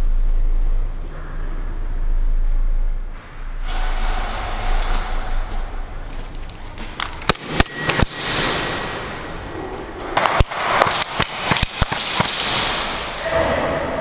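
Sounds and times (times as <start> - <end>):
airsoft guns firing: 7.2 - 9.4, 10.0 - 13.2.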